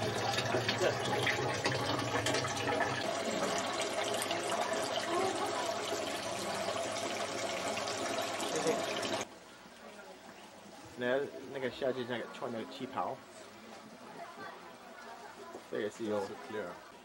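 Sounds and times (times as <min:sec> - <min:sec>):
water bubbling in fish tank: 0:00.0 - 0:09.3.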